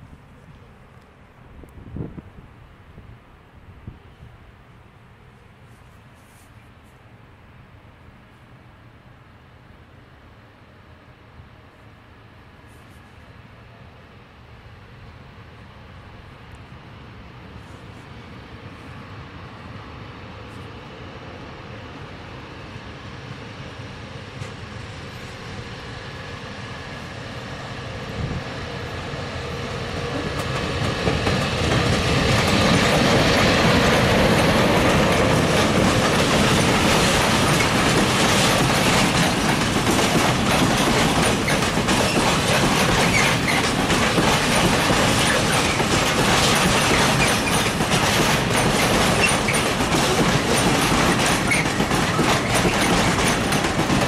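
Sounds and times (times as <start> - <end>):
freight train passing: 0.0 - 54.0
clickety-clack over rail joints: 23.9 - 27.1, 28.1 - 54.0.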